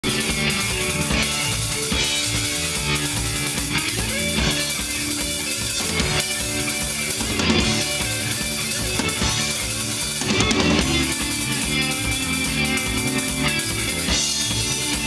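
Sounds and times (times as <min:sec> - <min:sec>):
drum kit: 0:00.0 - 0:15.0
electric guitars: 0:00.0 - 0:15.0.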